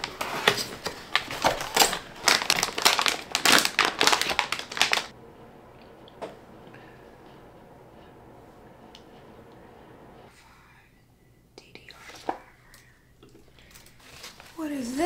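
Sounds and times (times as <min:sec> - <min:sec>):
plastic packaging crinkling: 0:00.0 - 0:05.1.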